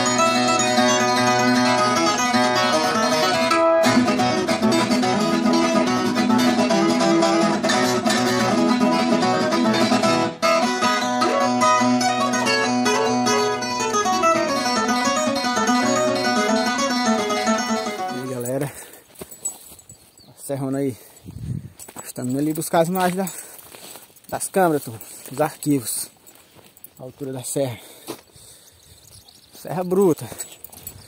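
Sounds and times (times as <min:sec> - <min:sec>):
plucked guitar music: 0:00.0 - 0:18.8
strummed accompaniment: 0:00.0 - 0:18.8.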